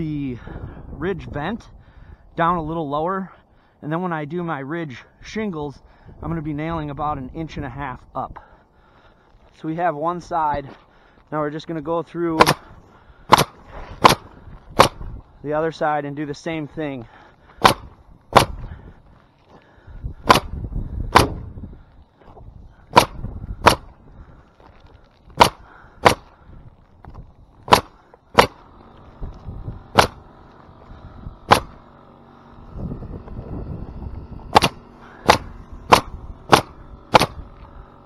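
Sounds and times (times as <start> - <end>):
roofing nailer firing nails: 12.4 - 12.7, 13.3 - 15.1, 17.5 - 18.8, 20.2 - 21.4, 22.9 - 23.9, 25.4 - 26.4, 27.6 - 29.2, 29.8 - 32.6, 34.4 - 38.0.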